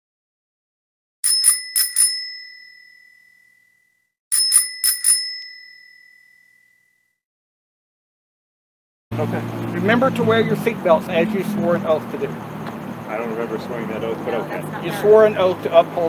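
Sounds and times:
bicycle bell dings: 0:01.2 - 0:07.2.

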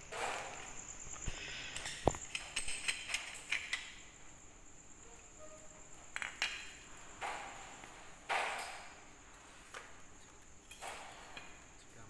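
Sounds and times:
rustling and scraping on tiled floor: 0:05.0 - 0:11.6.

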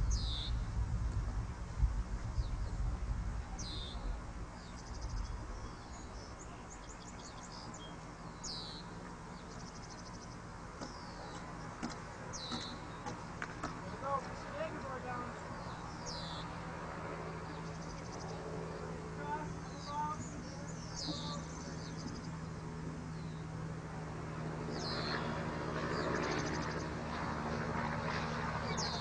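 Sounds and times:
rapid buzzy bird trills: 0:00.0 - 0:00.7, 0:03.5 - 0:23.8, 0:24.4 - 0:29.0
low rumble: 0:00.0 - 0:06.5.

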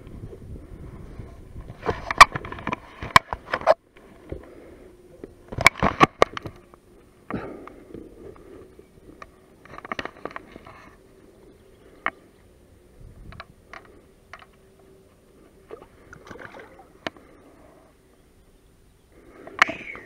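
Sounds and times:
knocks and scrapes in boat: 0:01.2 - 0:04.5.

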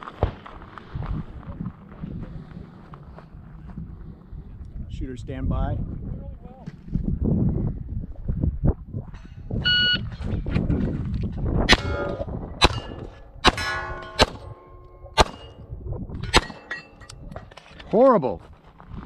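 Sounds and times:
shot timer beep: 0:09.7 - 0:10.0
pistol shots: 0:11.7 - 0:15.6, 0:16.2 - 0:16.9
steel targets ringing: 0:11.7 - 0:15.6, 0:16.2 - 0:17.2.

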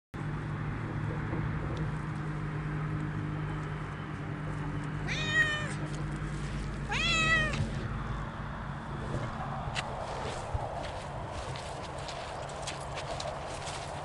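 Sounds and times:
cat meowing: 0:05.0 - 0:05.8, 0:06.9 - 0:07.6.

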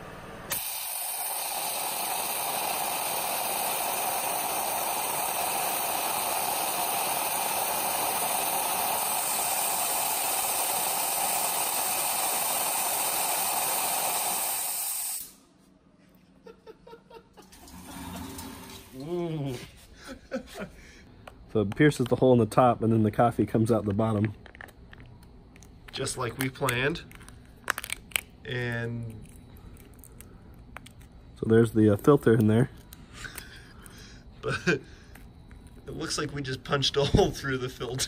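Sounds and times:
water jet hissing: 0:00.0 - 0:15.4, 0:17.5 - 0:19.1.

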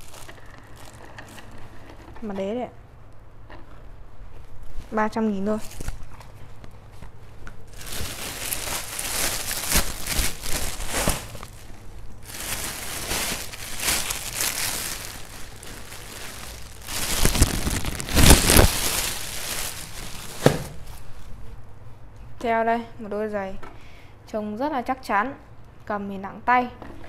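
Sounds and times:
plastic bags rustling: 0:00.0 - 0:02.1, 0:07.6 - 0:21.4.

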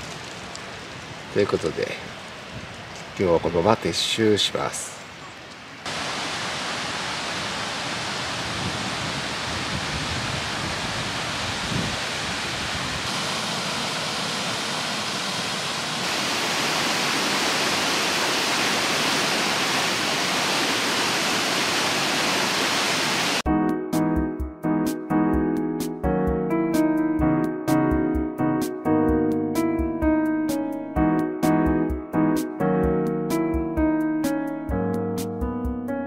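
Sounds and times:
river and waterfall rushing: 0:00.0 - 0:23.4
piano music: 0:23.4 - 0:36.0.

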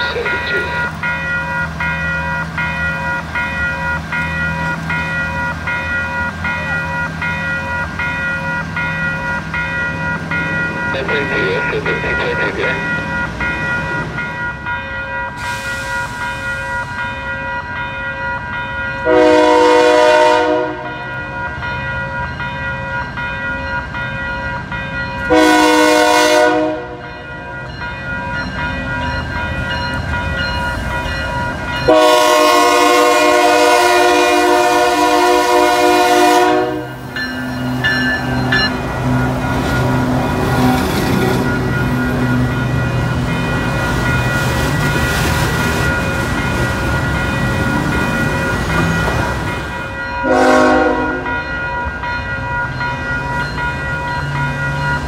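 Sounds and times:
crossing signal bells ringing: 0:00.0 - 0:55.0
locomotive rumbling past: 0:00.0 - 0:55.0
locomotive air horn blasts: 0:19.0 - 0:20.9, 0:25.3 - 0:27.0, 0:31.9 - 0:37.0, 0:50.2 - 0:51.3.

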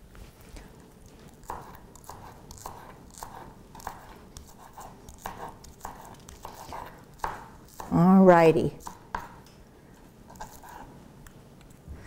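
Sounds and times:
knife cutting crunchy fried food: 0:01.4 - 0:08.0.

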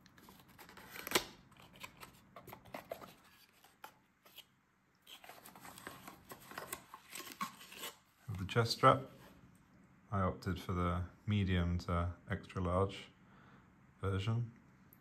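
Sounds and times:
cardboard scraping and rustling: 0:00.2 - 0:04.4, 0:05.1 - 0:08.0
cardboard flap snapping: 0:00.6 - 0:02.6.

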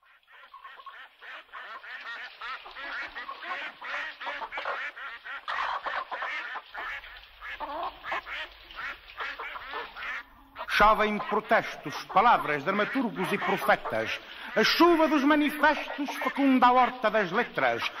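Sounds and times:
flock of birds chattering: 0:00.2 - 0:18.0.

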